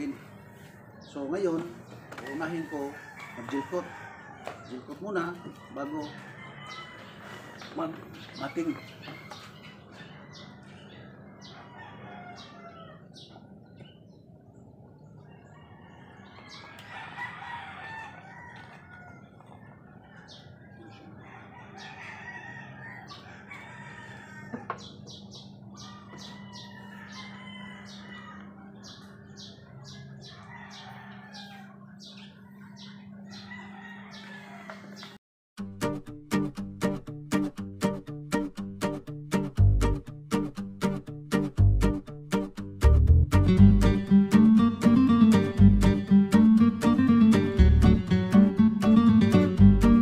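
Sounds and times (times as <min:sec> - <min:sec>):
rooster crowing: 0:00.0 - 0:01.1, 0:02.0 - 0:13.2, 0:15.3 - 0:25.0, 0:25.8 - 0:35.2
chickens clucking: 0:18.2 - 0:35.2.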